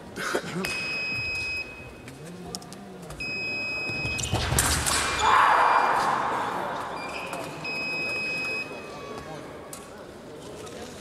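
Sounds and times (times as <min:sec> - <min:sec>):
scoring machine beep: 0:00.7 - 0:01.9, 0:03.2 - 0:04.2, 0:07.0 - 0:08.9.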